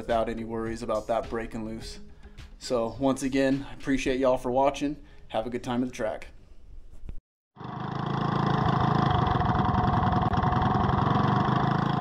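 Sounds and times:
small engine running: 0:07.6 - 0:12.0.

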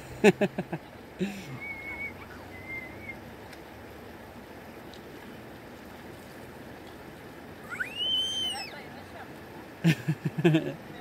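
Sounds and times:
creek flowing over rocks: 0:00.0 - 0:11.0
high wavering whistle-like notes: 0:01.5 - 0:03.2, 0:07.6 - 0:08.8.

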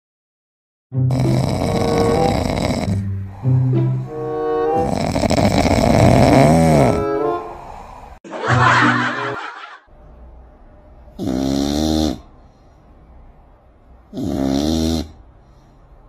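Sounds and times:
cat snoring: 0:01.1 - 0:03.7, 0:04.8 - 0:07.0, 0:11.1 - 0:12.3, 0:14.1 - 0:15.2
rasping breath: 0:01.1 - 0:08.2.

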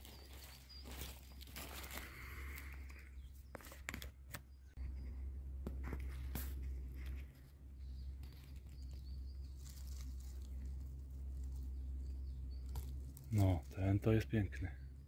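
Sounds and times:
twigs snapping: 0:00.0 - 0:02.9, 0:08.1 - 0:13.8
faint bird chirps: 0:00.0 - 0:03.7
footsteps on forest floor: 0:00.0 - 0:04.1, 0:05.7 - 0:13.8.

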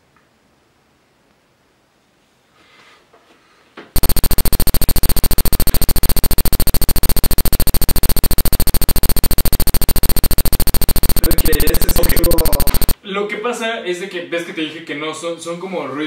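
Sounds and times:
pulsing electronic buzz: 0:04.0 - 0:13.0
steady high whine: 0:04.0 - 0:13.0.

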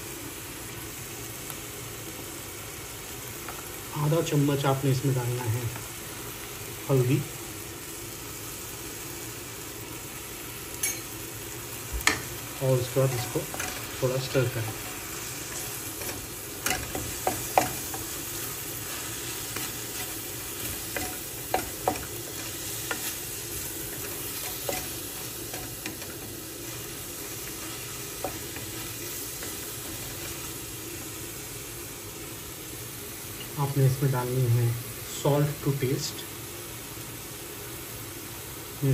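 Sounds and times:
spiced sauce sizzling in a pan: 0:00.0 - 0:38.9
wooden spatula scraping and knocking pan: 0:18.9 - 0:30.5.

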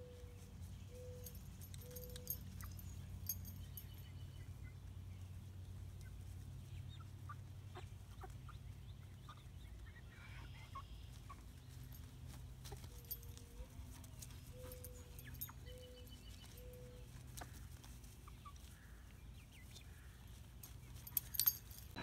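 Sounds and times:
chicks clucking and peeping: 0:03.8 - 0:21.1.

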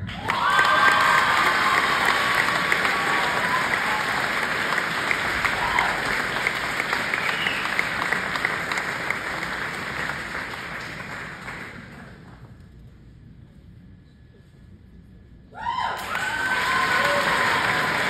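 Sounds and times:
audience applauding: 0:00.0 - 0:12.4, 0:16.0 - 0:18.0.

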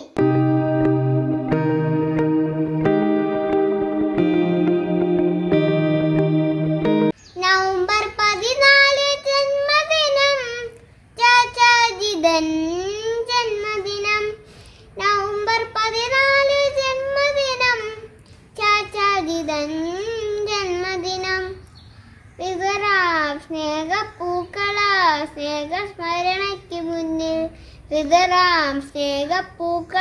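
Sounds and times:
boy singing: 0:07.2 - 0:21.6, 0:22.4 - 0:30.0.

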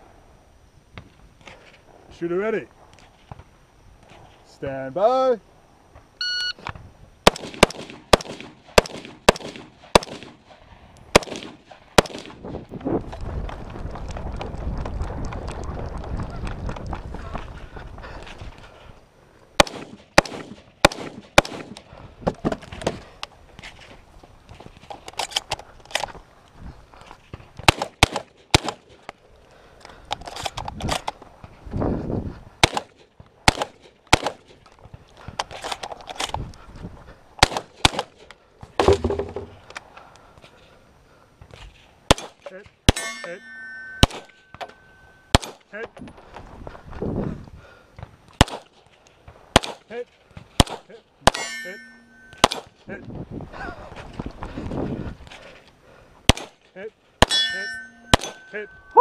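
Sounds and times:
gunshots: 0:07.2 - 0:12.4, 0:19.6 - 0:21.8, 0:27.6 - 0:28.9, 0:32.6 - 0:34.5, 0:37.4 - 0:38.1, 0:42.1 - 0:44.7, 0:45.3 - 0:45.6, 0:48.4 - 0:48.7, 0:49.5 - 0:49.9, 0:50.6 - 0:52.7, 0:57.2 - 0:59.0
shotgun shots: 0:07.2 - 0:12.4, 0:19.6 - 0:21.8, 0:27.6 - 0:28.9, 0:32.6 - 0:34.5, 0:37.4 - 0:38.1, 0:42.1 - 0:44.6, 0:45.3 - 0:45.6, 0:48.4 - 0:48.7, 0:49.5 - 0:49.9, 0:50.6 - 0:52.7, 0:56.3 - 0:56.6, 0:57.2 - 0:58.7.

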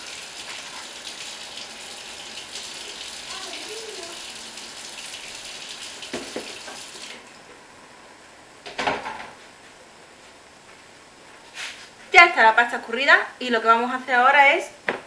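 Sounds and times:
water pouring into sink: 0:00.0 - 0:07.3.

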